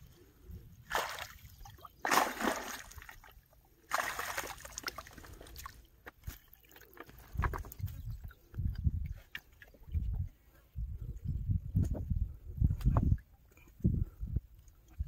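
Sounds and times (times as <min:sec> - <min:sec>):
water streaming off net: 0:02.0 - 0:03.1.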